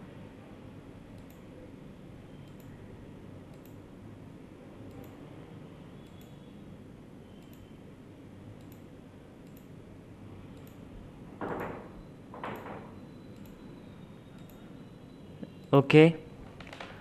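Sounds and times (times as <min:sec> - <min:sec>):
room hiss and hum: 0:00.0 - 0:17.0
computer mouse clicks: 0:01.1 - 0:01.5, 0:02.4 - 0:02.8, 0:03.5 - 0:03.8, 0:04.8 - 0:05.2, 0:06.0 - 0:06.4, 0:07.4 - 0:07.7, 0:08.6 - 0:09.8, 0:10.5 - 0:10.9, 0:13.3 - 0:13.7, 0:14.3 - 0:14.7.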